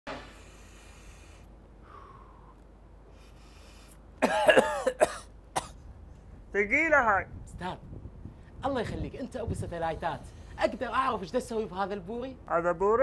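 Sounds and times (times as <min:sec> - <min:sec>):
faint steady hiss: 0:00.1 - 0:13.0
man coughing and clearing throat: 0:04.2 - 0:05.8.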